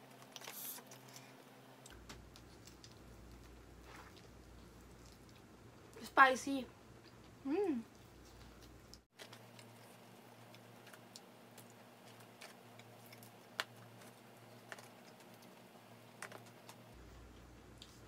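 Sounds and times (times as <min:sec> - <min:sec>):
chewing and crackles of eating: 0:00.0 - 0:06.0, 0:06.9 - 0:18.0.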